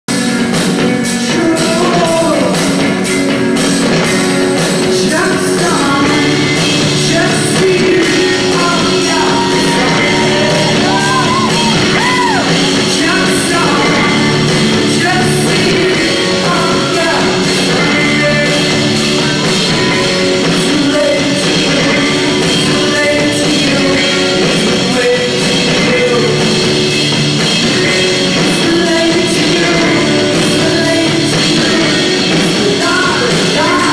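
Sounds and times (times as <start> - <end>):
instrumental backing: 0.1 - 33.9
woman singing into microphone: 7.0 - 14.2.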